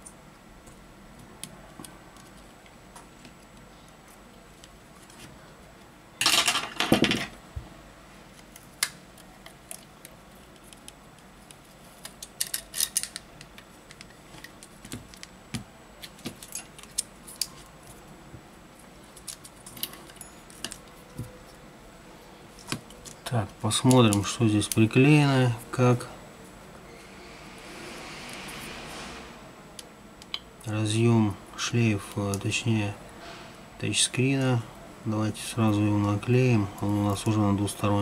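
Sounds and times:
scraping noise: 27.1s - 29.5s.

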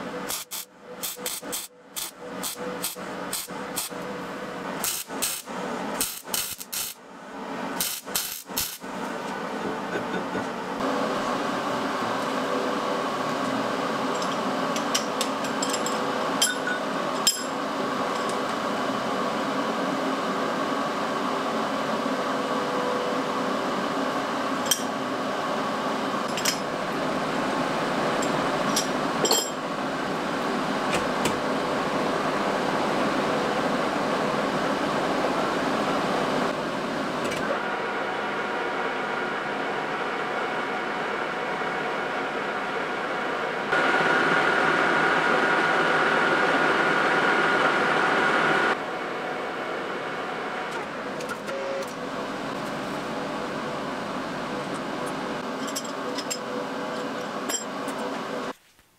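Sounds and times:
mig welding crackle: 0.3s - 4.0s, 4.8s - 7.0s, 7.8s - 8.8s.

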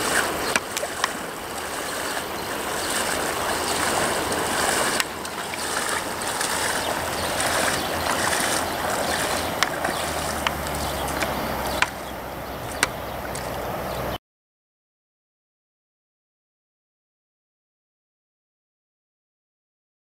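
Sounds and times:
water splashing around legs: 0.0s - 14.1s
flowing river water: 0.0s - 14.2s.

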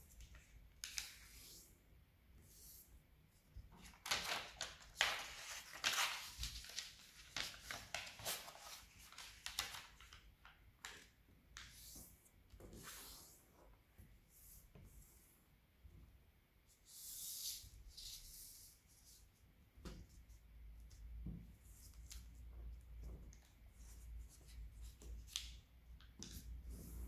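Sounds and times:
paper rustling and crinkling: 3.8s - 11.1s.

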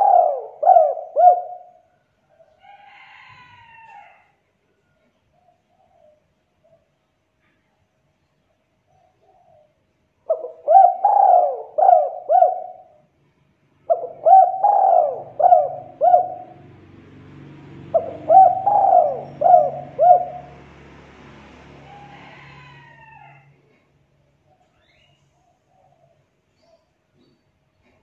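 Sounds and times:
dove cooing: 0.0s - 2.5s, 9.0s - 13.0s, 13.8s - 16.8s, 17.7s - 20.8s.

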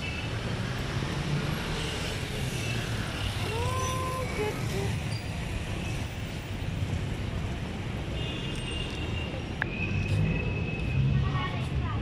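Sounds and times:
city traffic rumbling: 0.0s - 12.0s.

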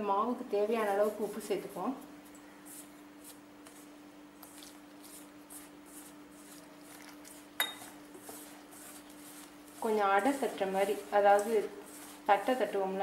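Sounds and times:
hand rubbing flour in metal bowl: 0.7s - 13.0s.

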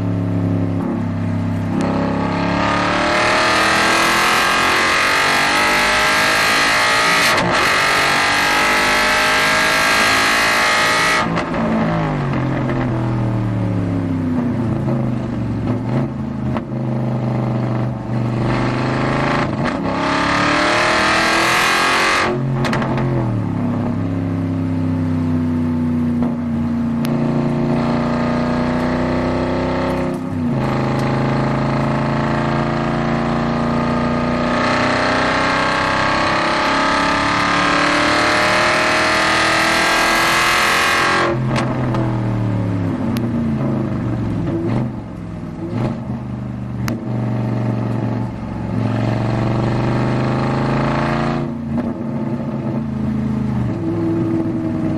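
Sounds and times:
race car engine accelerating: 1.6s - 12.9s, 27.0s - 46.2s, 46.8s - 52.9s.

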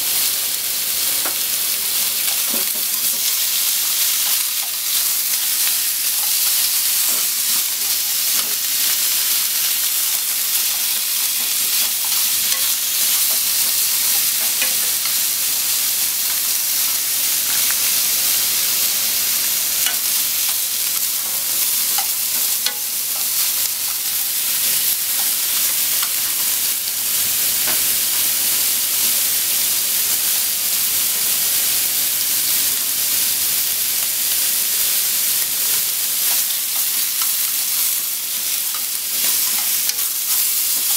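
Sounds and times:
pork sizzling in a frying pan: 0.0s - 40.9s
chopsticks ticking and scraping: 2.2s - 18.0s, 19.8s - 24.1s, 35.4s - 40.9s.

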